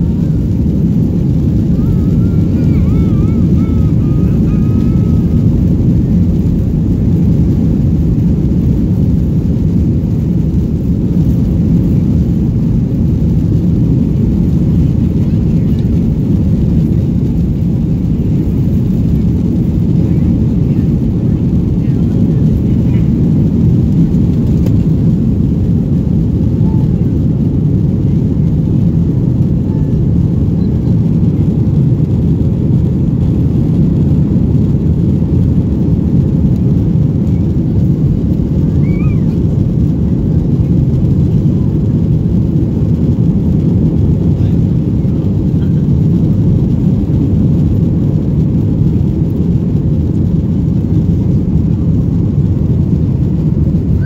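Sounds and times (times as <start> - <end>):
jet engine roar in cabin: 0.0 - 54.0
rushing air: 0.0 - 54.0.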